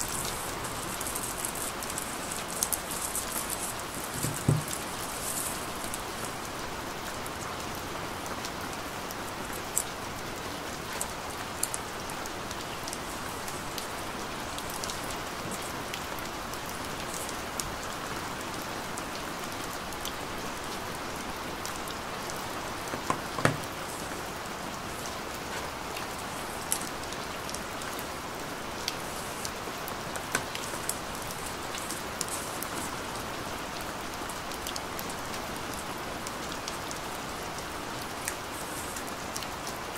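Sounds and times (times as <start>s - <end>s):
steady hiss: 0.0s - 39.9s
cardboard box clicks and taps: 4.2s - 4.8s, 22.9s - 23.6s.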